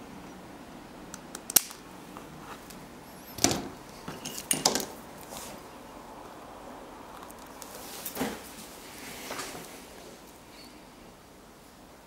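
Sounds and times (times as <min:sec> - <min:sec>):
cable rustling: 0:01.6 - 0:05.7.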